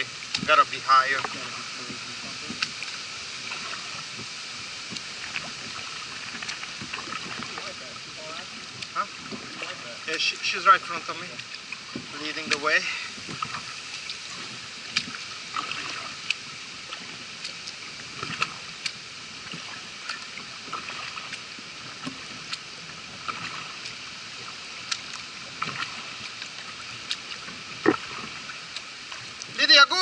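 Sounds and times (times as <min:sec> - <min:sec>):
paddle splashes and drips: 0:00.0 - 0:30.0
steady watery hiss: 0:00.0 - 0:30.0
small ticks: 0:08.6 - 0:09.0, 0:13.3 - 0:15.2, 0:16.2 - 0:20.4, 0:24.8 - 0:29.6.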